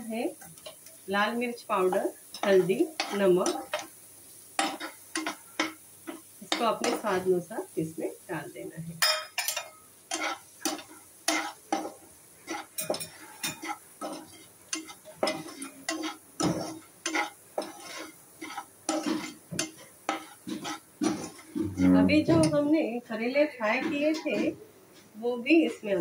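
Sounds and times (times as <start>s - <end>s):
onions sizzling in oil: 0.0s - 24.4s
metal spatula scraping frying pan: 2.3s - 3.9s, 4.6s - 7.2s, 9.0s - 22.6s, 23.6s - 24.5s.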